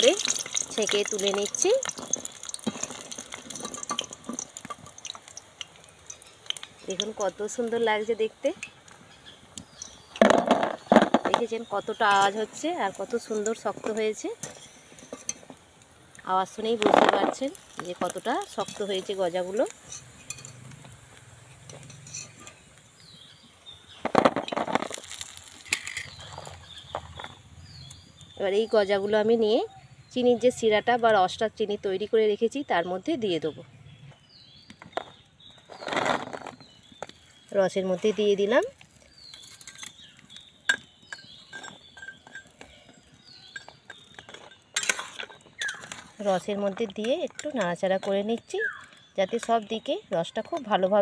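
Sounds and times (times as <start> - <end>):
fried snacks clattering on skimmer: 0.0 - 28.0, 34.8 - 51.0
spoon clinking against steel pot: 40.7 - 42.6.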